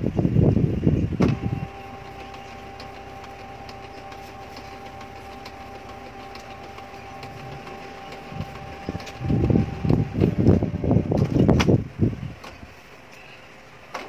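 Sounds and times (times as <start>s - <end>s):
printer motor hum: 1.2s - 11.5s.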